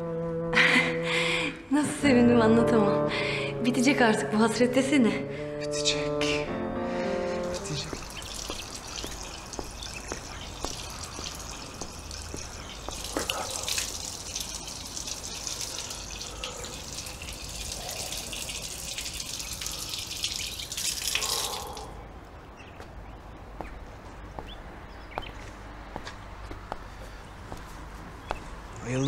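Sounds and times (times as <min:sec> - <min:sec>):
water drips: 0:07.4 - 0:22.2
fountain water splashing: 0:07.5 - 0:21.9.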